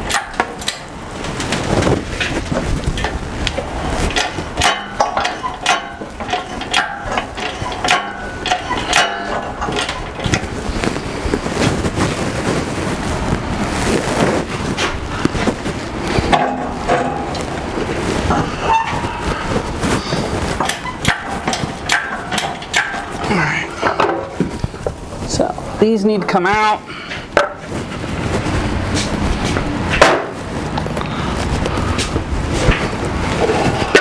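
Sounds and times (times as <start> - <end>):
steel frame clanking and scraping: 0.0 - 25.4, 26.9 - 34.0
metal squeals: 4.1 - 10.4, 18.3 - 23.8.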